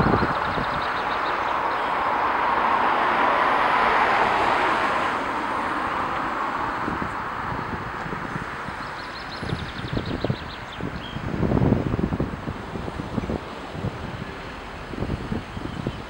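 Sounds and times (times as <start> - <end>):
car passing: 0.0 - 16.0
road traffic rushing: 0.0 - 16.0.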